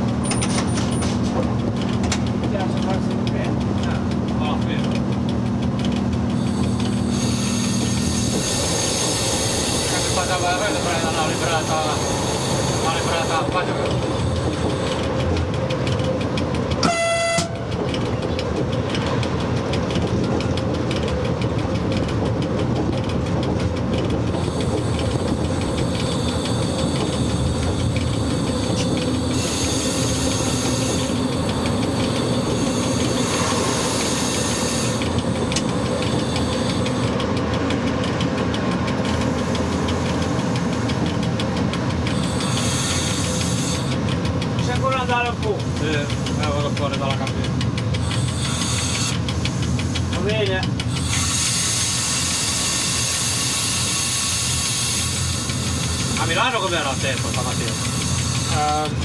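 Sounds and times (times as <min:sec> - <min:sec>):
train wheels rumbling on rail: 0:00.0 - 0:59.0
train horn blast: 0:16.8 - 0:17.8.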